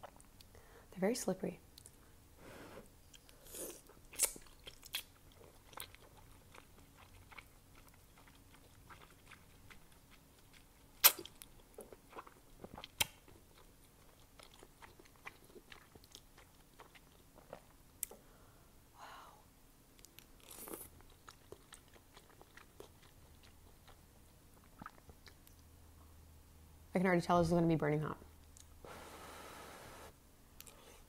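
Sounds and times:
wet chewing mouth smacks: 4.1 - 18.2, 20.0 - 25.7.

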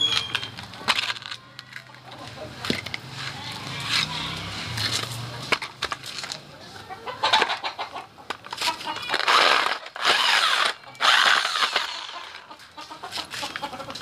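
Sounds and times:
rotary hammer grinding concrete: 8.5 - 14.0.

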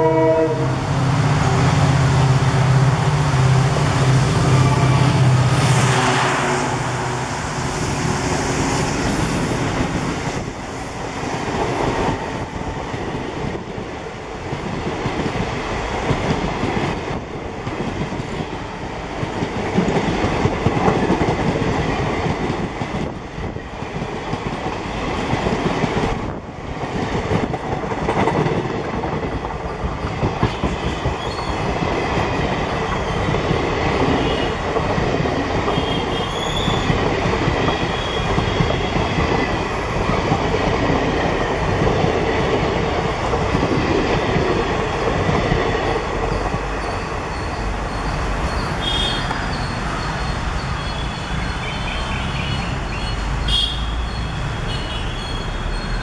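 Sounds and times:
diesel locomotive engine drone: 0.0 - 56.0.

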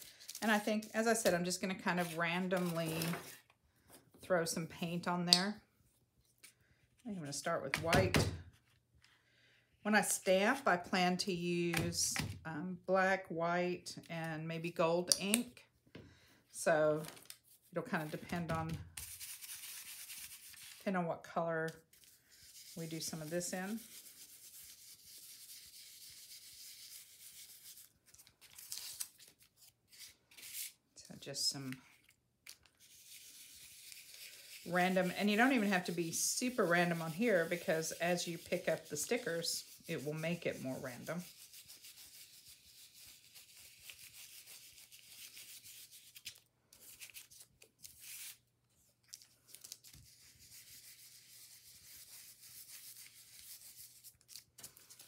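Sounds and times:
brush rubbing on stencil: 22.3 - 27.8, 32.9 - 46.1
brush dabs: 33.1 - 45.5.

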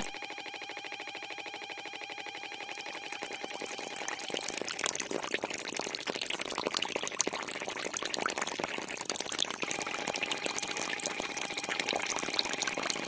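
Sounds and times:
wet slurry bubbling and fizzing: 2.7 - 13.0.

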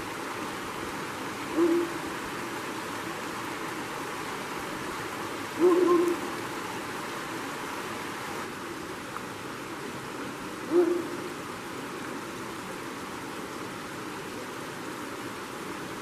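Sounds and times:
stream running: 0.0 - 16.0
low hooting calls: 1.5 - 2.0, 5.6 - 6.4, 10.7 - 11.4.

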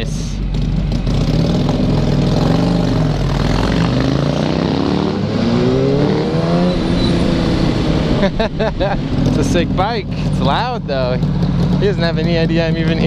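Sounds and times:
motorcycle engines accelerating: 0.0 - 13.0
rush of riding wind: 2.9 - 10.4.

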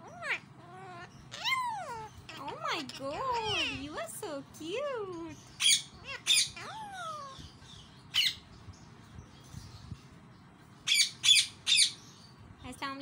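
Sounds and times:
parakeet squawking: 0.0 - 8.5, 10.8 - 12.0.

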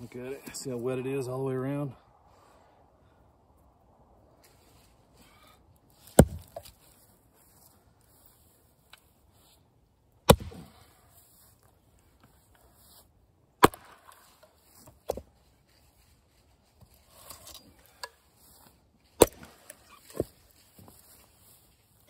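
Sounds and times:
axe chopping wood: 6.0 - 6.8, 10.2 - 10.9, 13.6 - 14.4, 19.2 - 20.3.

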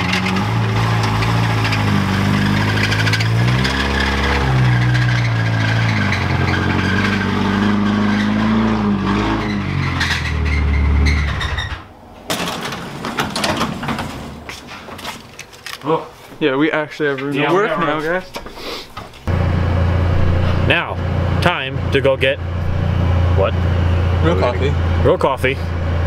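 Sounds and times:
car engine running at low revs: 0.0 - 5.6, 19.3 - 26.0
clicks and knocks: 12.3 - 15.8.

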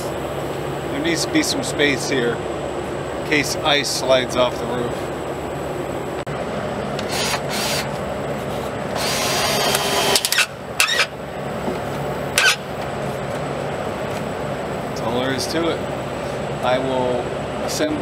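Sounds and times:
cordless drill driving screws: 7.0 - 7.9, 9.0 - 11.1, 12.4 - 12.6.

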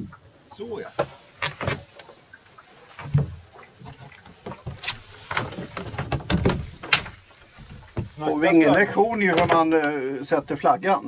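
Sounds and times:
knocks and clunks of handling gear: 4.3 - 10.0.

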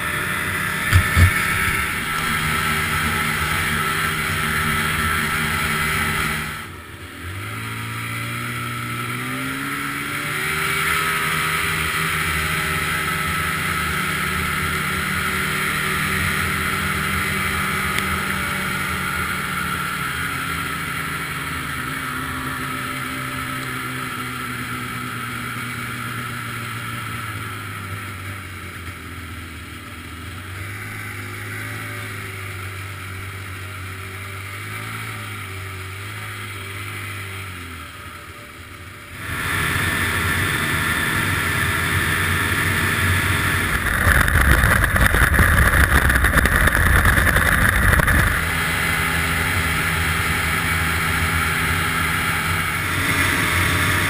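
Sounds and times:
snowmobile engine revving: 0.0 - 29.4, 30.1 - 54.0.

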